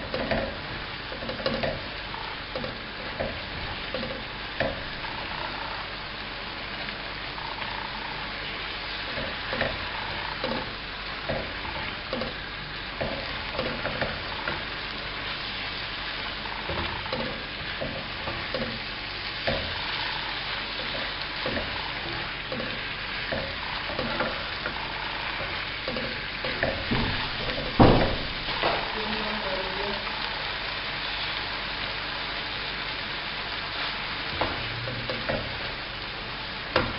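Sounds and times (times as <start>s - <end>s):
meat and onions sizzling: 0.0s - 36.9s
spatula scraping and knocking pan: 20.8s - 28.8s.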